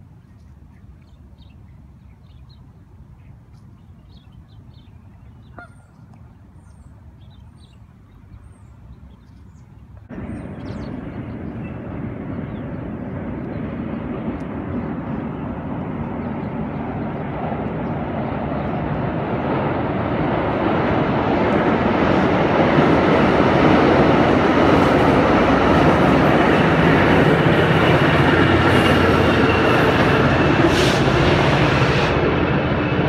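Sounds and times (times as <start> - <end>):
birds calling: 0.2 - 19.6
train rumbling over bridge: 9.4 - 33.0.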